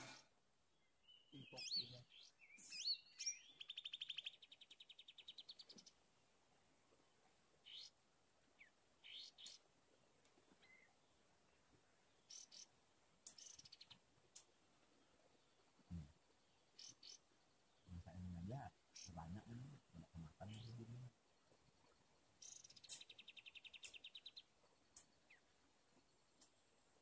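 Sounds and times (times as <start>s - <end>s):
bird trill: 1.0s - 5.9s, 8.6s - 9.6s, 12.3s - 12.7s, 16.8s - 17.2s, 22.4s - 24.4s
short bird chirps: 1.0s - 5.9s, 7.6s - 7.9s, 8.6s - 9.6s, 12.3s - 12.7s, 13.3s - 14.0s, 16.8s - 17.2s, 22.4s - 24.5s.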